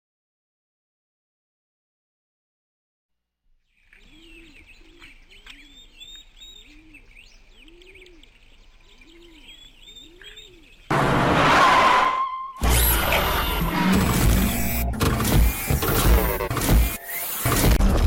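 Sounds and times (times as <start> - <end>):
birds chirping and singing: 3.7 - 10.9.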